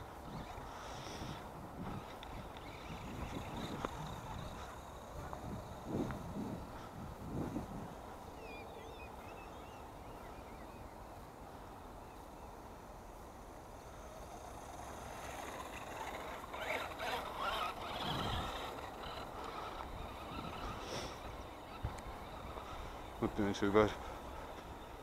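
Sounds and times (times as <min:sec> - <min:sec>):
small birds chirping: 0:00.0 - 0:12.7, 0:14.4 - 0:25.0
rc truck electric motor: 0:00.2 - 0:06.9, 0:13.4 - 0:24.0.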